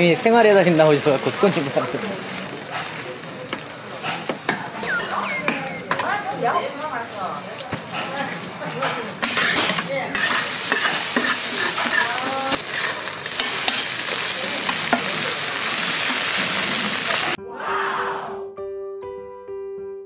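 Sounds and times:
batter sizzling on griddle: 0.0 - 5.1, 5.7 - 17.4
metal spatula scraping: 9.2 - 13.8.

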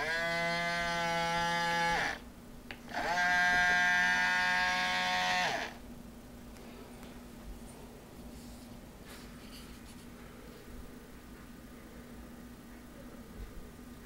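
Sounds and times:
small gearbox motors whining: 0.0 - 2.2, 2.9 - 5.8.

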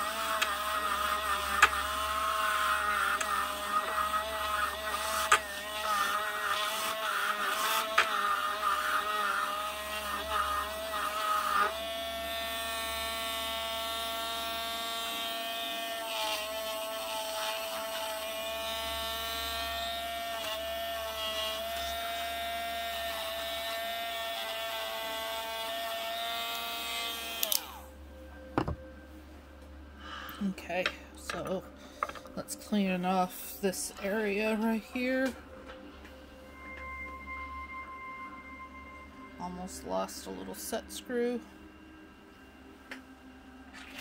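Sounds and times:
rotary tool grinding metal: 0.0 - 27.8.

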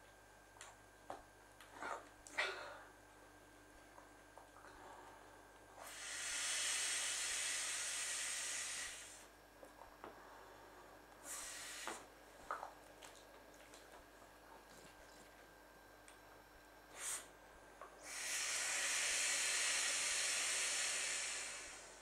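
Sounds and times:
breath blown into inflatable toy: 5.8 - 9.3, 11.2 - 12.0, 16.9 - 17.3, 18.0 - 22.0.

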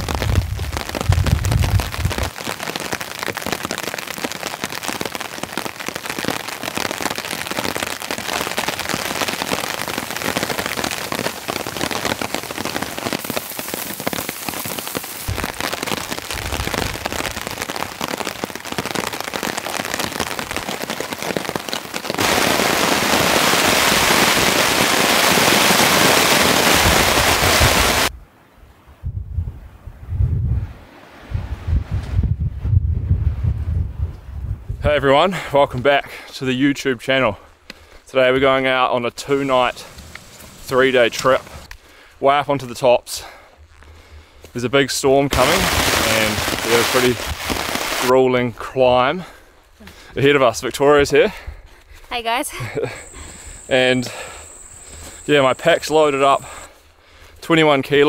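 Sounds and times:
wind gusts rumbling on microphone: 0.0 - 2.4, 22.2 - 35.9
heavy rain pattering: 0.0 - 28.1, 35.1 - 51.5, 52.1 - 58.0.

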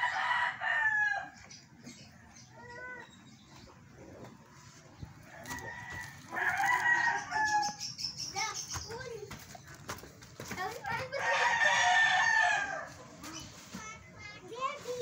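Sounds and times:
rooster crowing: 0.0 - 1.4, 5.3 - 7.8, 11.2 - 12.9.

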